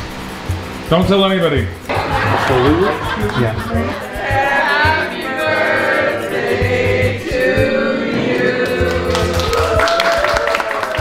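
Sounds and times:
background music beat: 0.0 - 11.0
group of people singing: 2.8 - 10.7.

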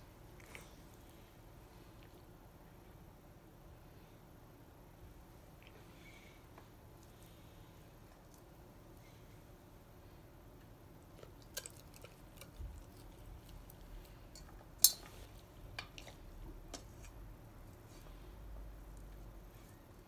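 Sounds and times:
dog licking and chewing food: 11.2 - 14.2.

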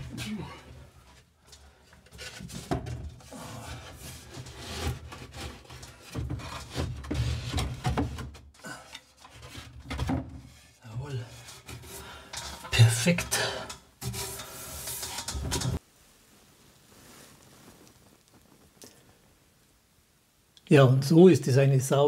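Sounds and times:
shelf scraping on wood: 2.1 - 8.4, 9.1 - 15.8.

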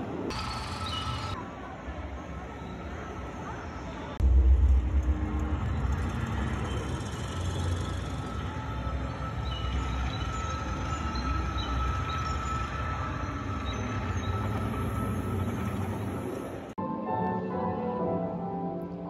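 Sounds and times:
deep steady rumble: 4.2 - 16.5.

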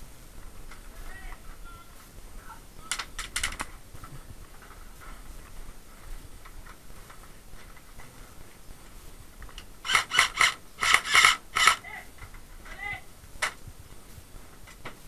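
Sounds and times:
airsoft rifle shots: 2.8 - 3.7, 9.8 - 12.1.

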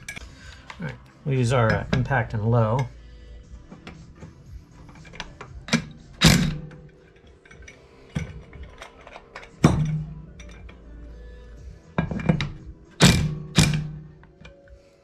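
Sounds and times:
metal knocks and clanks: 1.6 - 2.9, 3.7 - 10.9, 11.9 - 14.6.

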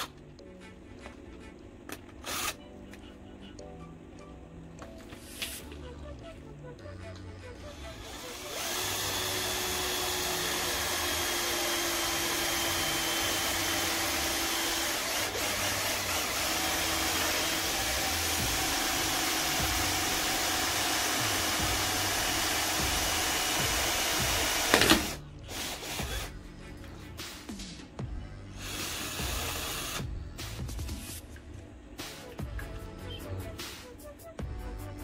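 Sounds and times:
cordless drill whining: 2.2 - 2.6, 7.7 - 26.3, 28.6 - 30.0.

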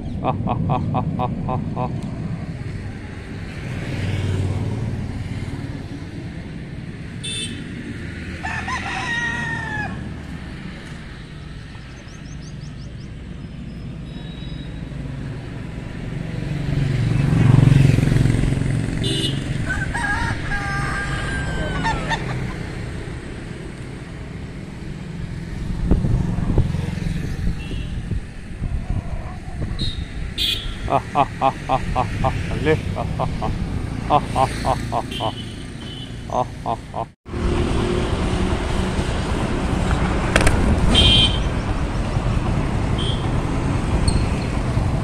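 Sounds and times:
rooster crowing: 8.4 - 10.3, 19.6 - 22.6.

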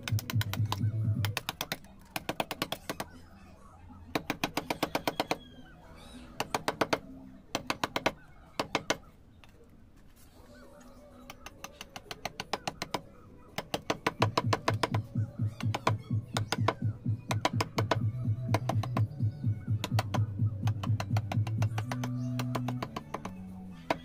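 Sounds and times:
background music with low beat: 0.0 - 1.6, 14.0 - 24.0
metal chisel tapping stone: 19.8 - 24.0.

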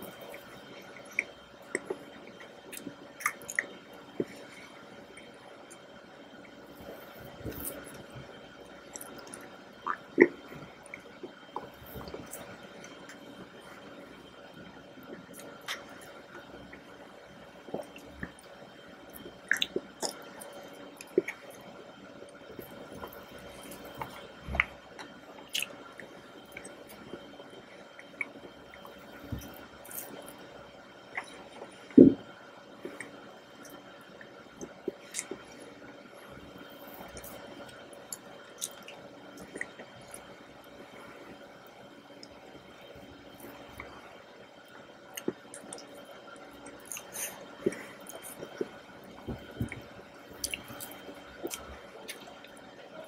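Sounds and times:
wet mouth eating sounds: 1.0 - 4.5, 19.1 - 21.4, 22.8 - 26.6, 37.1 - 40.3, 45.2 - 45.9, 46.7 - 52.6
mouth eating sounds: 19.2 - 20.3.

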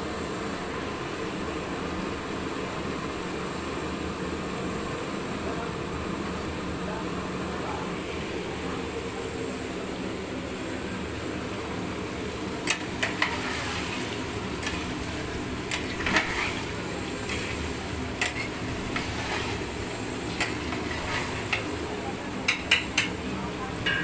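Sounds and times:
steady low hum: 0.0 - 24.0
meat sizzling in a pot: 11.7 - 24.0
metal ladle scraping a pot: 12.7 - 14.9, 15.7 - 21.6.

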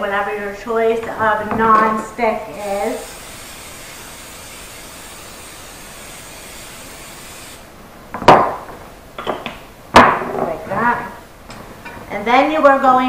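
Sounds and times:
pump spray bottle hissing: 2.6 - 7.6.

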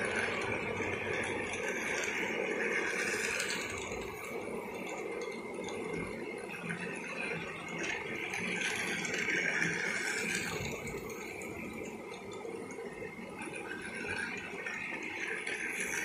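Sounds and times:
plastic wheels rattling on rails: 0.0 - 11.4
toy train motor whirring: 0.0 - 16.0.

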